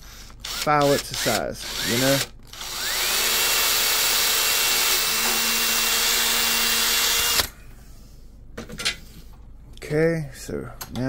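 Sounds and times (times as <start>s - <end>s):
power drill whining: 0.2s - 7.5s.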